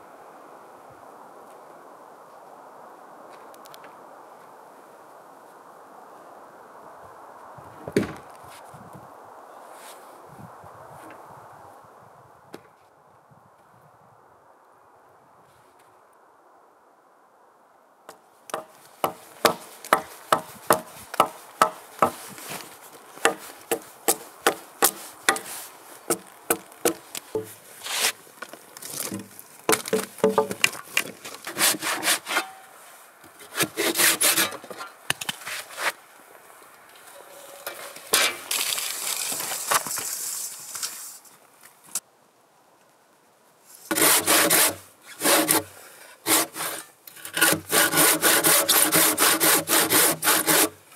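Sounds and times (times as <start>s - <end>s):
hand saw cutting wood: 18.6s - 22.3s, 23.2s - 28.2s, 31.4s - 32.7s, 33.4s - 34.9s, 37.4s - 38.6s, 43.9s - 50.8s.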